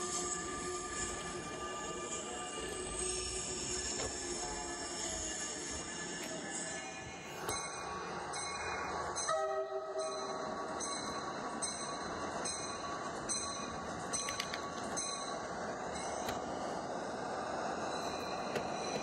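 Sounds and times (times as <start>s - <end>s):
toy train wheels clicking: 0.0s - 6.8s, 12.6s - 19.0s
toy train running noise: 0.0s - 9.2s, 10.4s - 19.0s.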